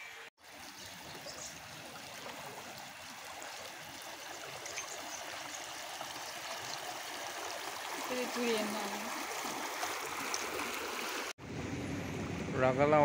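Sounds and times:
person wading through floodwater: 6.8 - 11.4.

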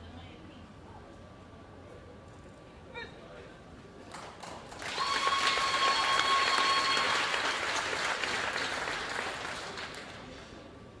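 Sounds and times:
spectators applauding: 4.1 - 10.4.

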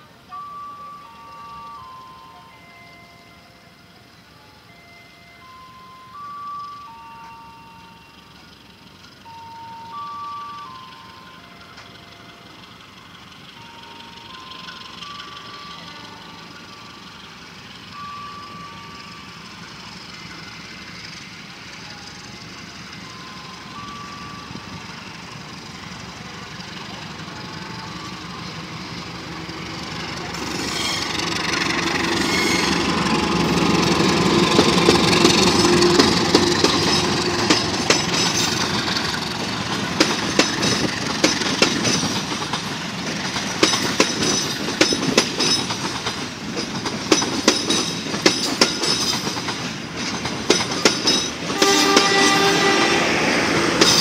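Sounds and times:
diesel locomotive engine passing: 0.0 - 54.0
train wheels clicking over rail joints: 23.6 - 52.8, 53.5 - 54.0.

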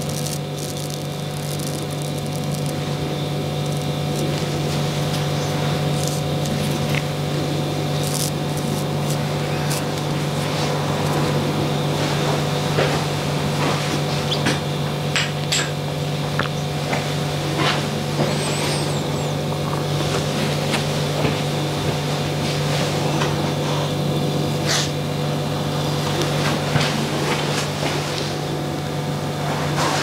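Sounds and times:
razor scraping stubble: 0.0 - 7.1, 7.9 - 11.4
low hum: 0.0 - 15.1.

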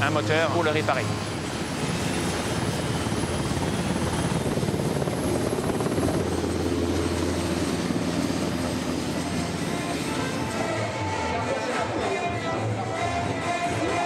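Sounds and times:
helicopter rotor beating: 0.0 - 11.1.

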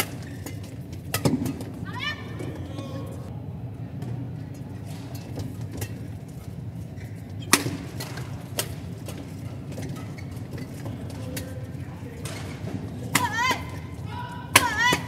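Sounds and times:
rackets hitting shuttlecock: 0.0 - 2.9, 7.3 - 11.6, 12.2 - 15.0
arena background noise: 0.0 - 15.0.

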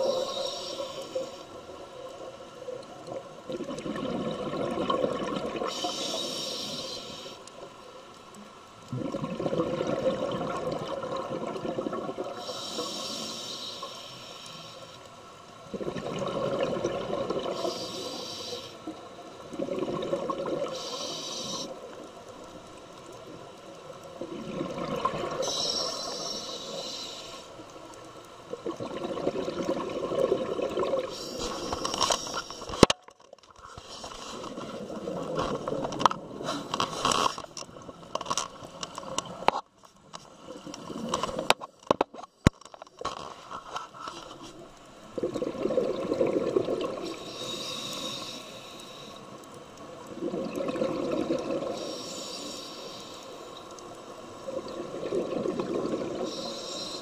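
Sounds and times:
gurgling exhaled bubbles: 2.0 - 5.9, 8.9 - 12.6, 15.7 - 17.8, 19.4 - 20.8, 24.2 - 26.2, 28.5 - 31.8, 45.1 - 47.2, 50.0 - 52.0, 54.4 - 56.5
diver breathing through regulator: 5.7 - 7.4, 12.4 - 14.9, 20.7 - 21.8, 47.1 - 49.3, 51.6 - 53.4, 56.2 - 57.0.

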